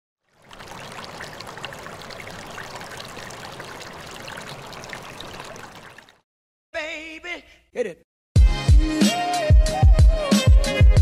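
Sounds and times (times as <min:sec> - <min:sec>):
flowing water with splashes: 0:00.2 - 0:06.2.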